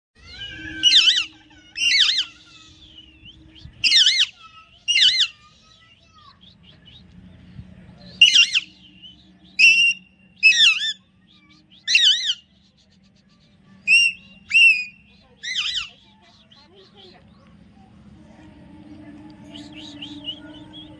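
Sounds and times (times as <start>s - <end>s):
parakeet whistled calls: 0.2s - 7.0s, 8.2s - 12.8s, 13.8s - 17.1s.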